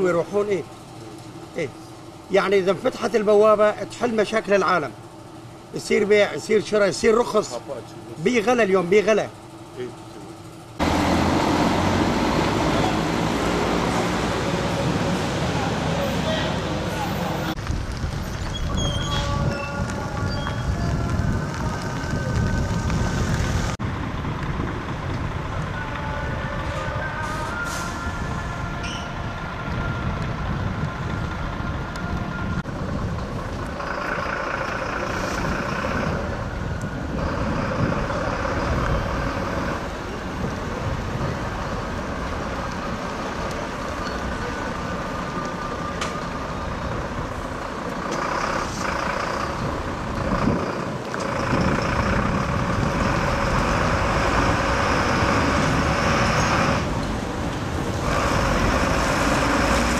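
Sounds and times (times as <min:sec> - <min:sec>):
lorry engines running: 0:00.0 - 0:59.9
road traffic: 0:00.0 - 0:59.9.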